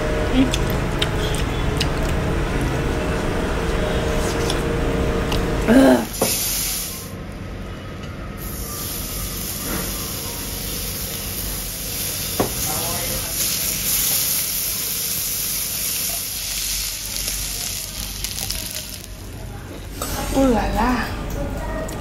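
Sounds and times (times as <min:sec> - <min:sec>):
meat sizzling on a grill: 0:06.1 - 0:07.1, 0:08.4 - 0:19.4.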